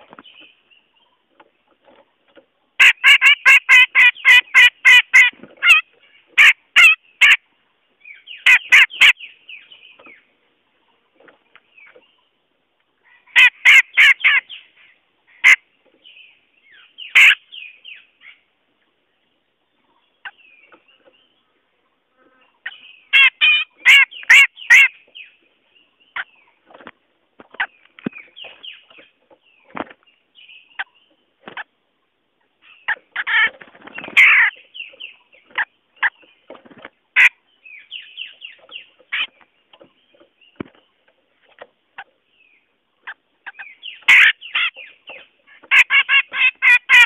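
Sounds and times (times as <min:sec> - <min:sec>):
bird harsh chattering calls: 0:02.8 - 0:07.4, 0:08.2 - 0:10.2, 0:13.0 - 0:18.4, 0:22.2 - 0:25.3, 0:32.6 - 0:36.3, 0:43.0 - 0:47.0.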